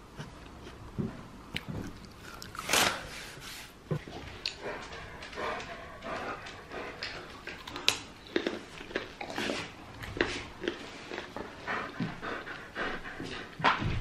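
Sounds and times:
carrot crunching and chewing: 1.5s - 3.1s, 7.4s - 11.6s.

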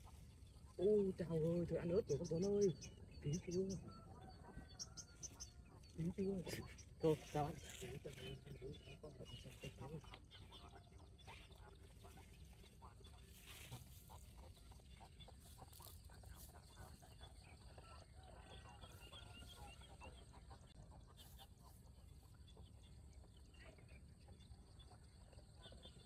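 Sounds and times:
bird chirps and calls: 0.6s - 17.3s.

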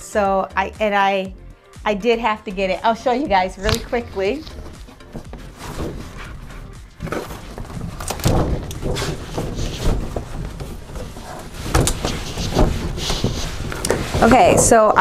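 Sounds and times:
box thumping against bag: 3.6s - 14.6s
paper bag rustling and crinkling: 3.7s - 14.9s.

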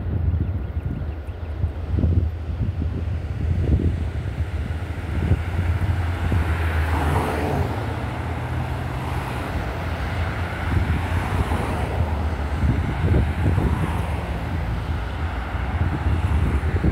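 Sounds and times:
steady low rumble: 0.0s - 6.8s
cars driving past: 1.3s - 16.9s.

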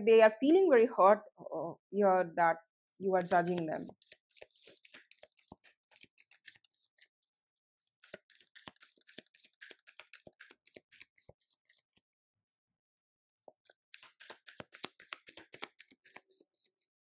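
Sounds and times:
cards being shuffled: 3.1s - 7.1s, 7.8s - 12.0s, 13.5s - 16.9s.

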